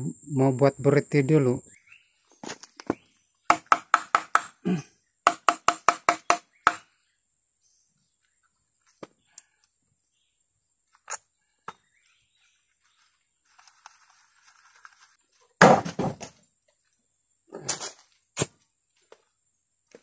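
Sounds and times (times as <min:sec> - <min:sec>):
soft rustling of leaves: 0:10.8 - 0:15.6.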